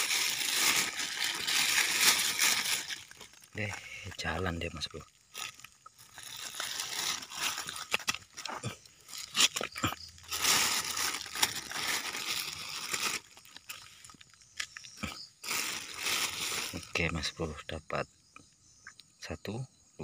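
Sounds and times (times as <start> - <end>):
plastic bag rustling: 0.0 - 4.3, 5.3 - 14.3, 15.4 - 17.1.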